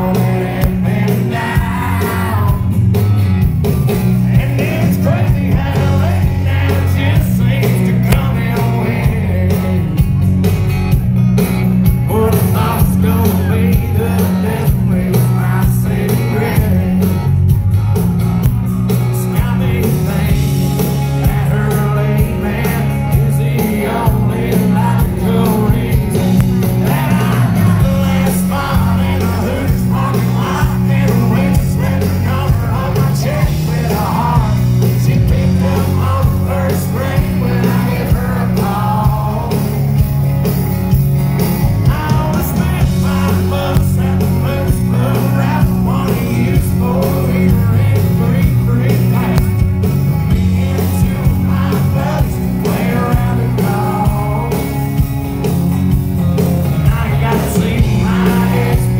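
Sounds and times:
man singing: 0.0 - 2.8, 4.1 - 10.0, 12.0 - 17.4, 19.0 - 40.0, 41.6 - 55.0, 56.7 - 58.9
live country band playing: 0.0 - 58.9.

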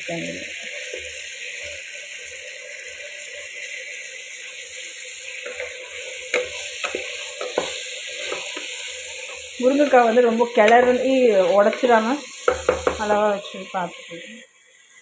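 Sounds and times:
food sizzling in a pot: 0.0 - 15.0
spoon scraping a pot: 5.4 - 14.3.

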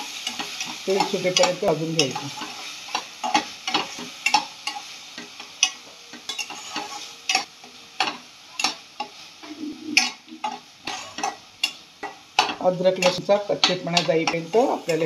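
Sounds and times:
food sizzling in oil: 0.0 - 15.0
plastic spatula scraping a pan: 6.3 - 7.0.

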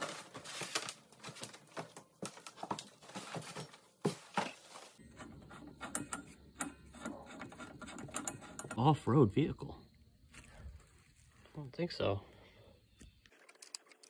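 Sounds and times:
plastic wrap rustling: 0.0 - 5.0.

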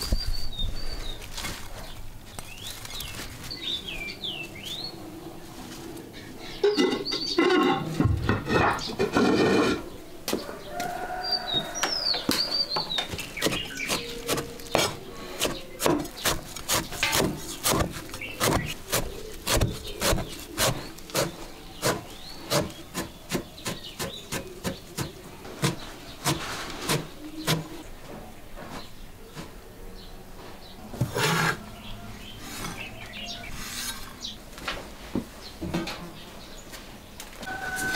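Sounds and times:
bird chirping: 1.8 - 5.4, 6.2 - 9.1, 9.8 - 34.5
bowl scraping inside clay crock: 6.6 - 9.9, 31.0 - 31.7, 32.4 - 34.3
cleaver chopping on wooden board: 13.4 - 27.7.

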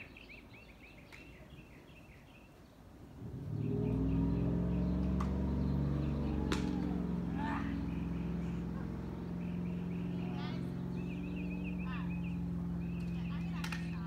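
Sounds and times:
engine running: 3.0 - 14.0.

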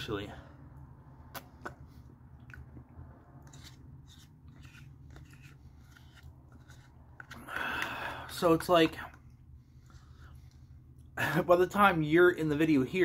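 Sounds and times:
person eating lip smacks: 1.3 - 1.8
person breathing: 7.3 - 8.4.

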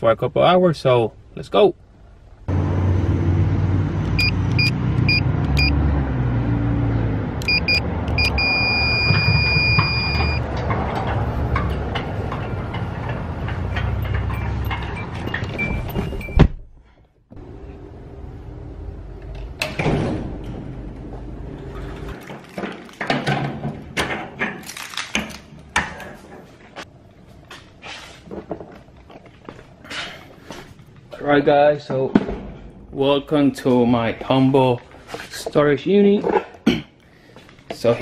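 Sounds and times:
electronic beeps: 7.4 - 10.4, 14.3 - 16.4.

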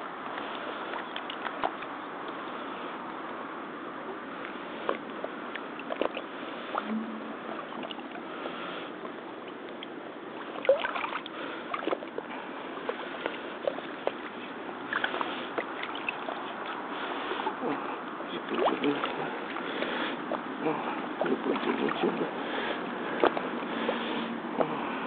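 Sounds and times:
boots wading in muddy water: 10.1 - 25.0.

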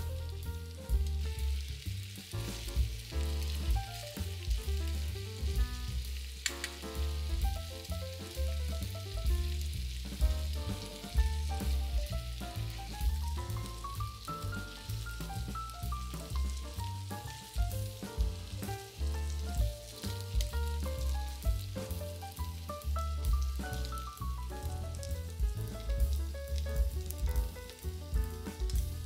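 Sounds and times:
music with strong bass line: 0.0 - 6.2, 7.0 - 29.0
chicken sizzling in oil: 0.0 - 29.0
sharp click: 6.4 - 6.9.

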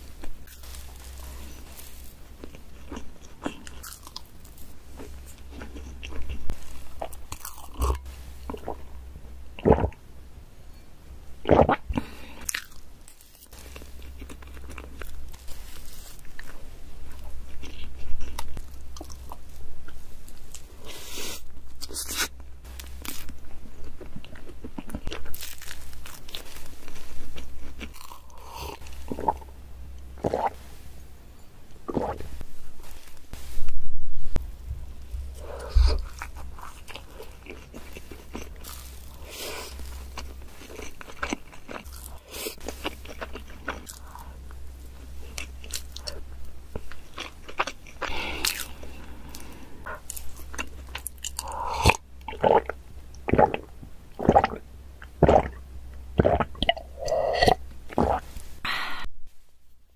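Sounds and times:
chewing cake: 0.4 - 8.8, 35.3 - 55.6.

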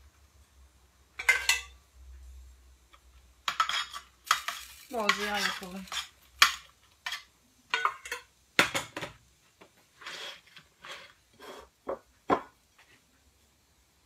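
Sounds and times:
spoon and dishes clinking on metal: 1.2 - 1.8, 3.4 - 9.2
soft scraping: 9.8 - 11.8.

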